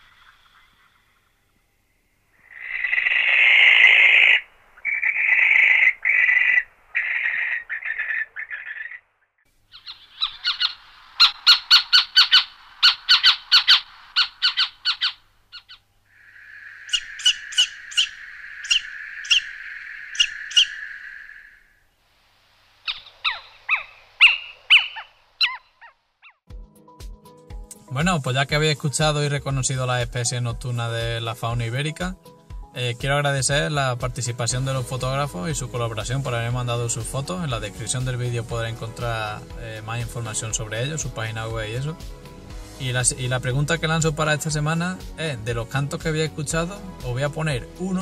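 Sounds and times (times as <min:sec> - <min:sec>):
little owl calls: 0:02.4 - 0:09.0, 0:09.7 - 0:21.8, 0:22.8 - 0:26.4
barn owl screeching: 0:02.4 - 0:09.1, 0:09.7 - 0:21.8, 0:22.8 - 0:26.4.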